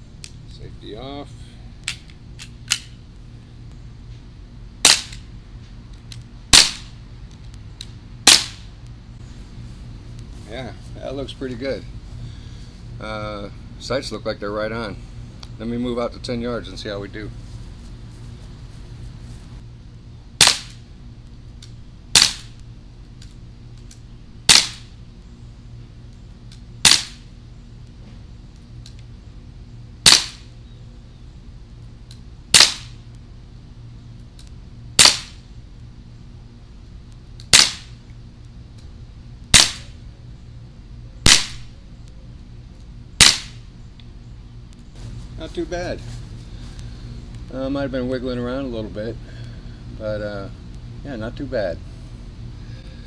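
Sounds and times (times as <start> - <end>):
bb pistol shots cracking: 4.8 - 5.2, 6.5 - 6.9, 8.2 - 8.7, 20.4 - 20.8, 22.1 - 22.6, 24.5 - 24.9, 26.8 - 27.2, 30.0 - 30.5, 32.5 - 33.0, 35.0 - 35.4, 37.4 - 38.0, 39.5 - 40.0, 41.2 - 41.7, 43.2 - 43.6.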